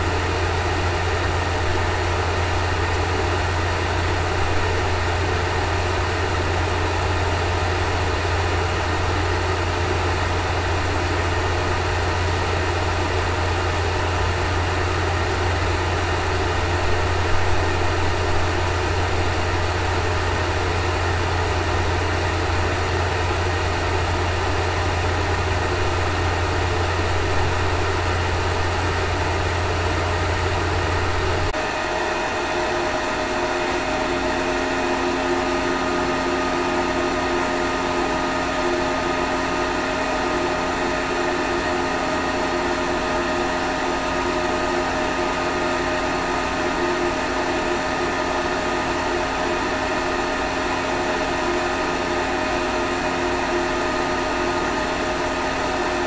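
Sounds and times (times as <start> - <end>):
inverter humming: 0.0 - 56.0.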